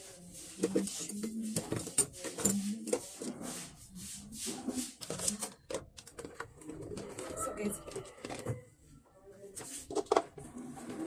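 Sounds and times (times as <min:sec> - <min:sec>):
rubbing and scraping: 0:00.0 - 0:11.0
small knocks and clatters: 0:05.0 - 0:08.7, 0:09.6 - 0:11.0.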